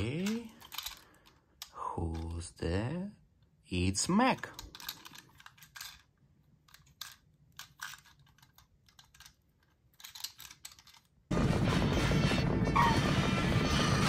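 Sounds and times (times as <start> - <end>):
clicks and rustles of toy handling: 0.0 - 2.6, 4.2 - 11.3
animated film soundtrack music: 11.3 - 14.0.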